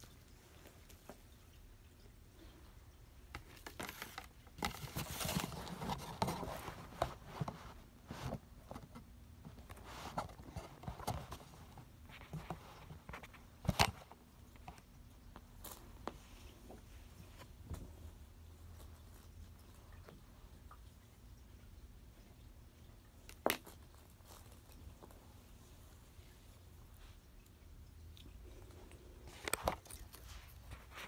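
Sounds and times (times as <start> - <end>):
cat rustling on carpet: 3.8 - 14.0, 15.4 - 20.6, 28.4 - 31.0.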